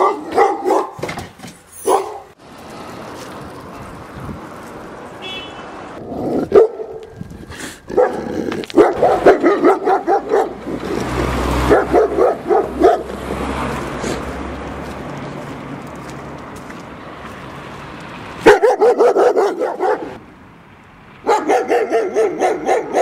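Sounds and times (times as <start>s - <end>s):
dog barking: 0.0s - 1.1s, 1.8s - 2.4s, 6.4s - 7.0s, 7.9s - 11.0s, 11.6s - 13.2s, 18.4s - 20.2s, 21.2s - 23.0s.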